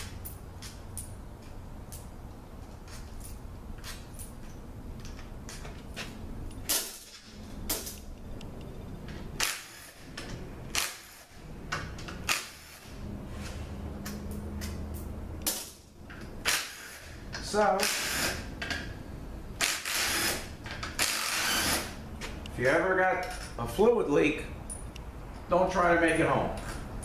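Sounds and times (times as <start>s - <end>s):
low shop hum: 0.0s - 27.0s
cordless drill: 17.8s - 18.4s, 19.6s - 22.0s.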